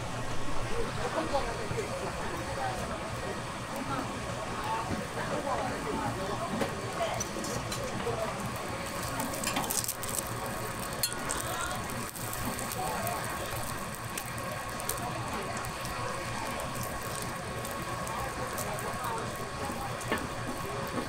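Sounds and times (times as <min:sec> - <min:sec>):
utensils clinking on cookware: 0:09.0 - 0:10.2, 0:10.8 - 0:11.4.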